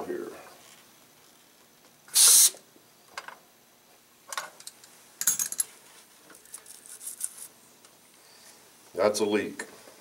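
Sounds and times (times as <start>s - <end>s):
gas hiss: 2.1s - 2.6s
wrench clinking on fitting: 4.6s - 5.7s.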